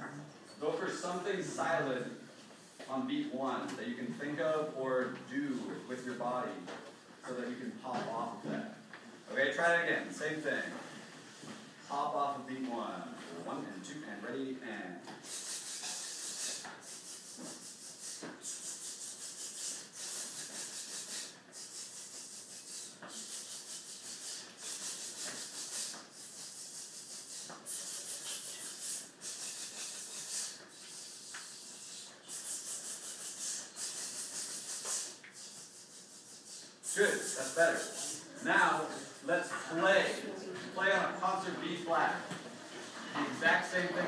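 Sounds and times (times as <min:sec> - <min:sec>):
group shushing in rhythm: 0:15.1 - 0:40.8.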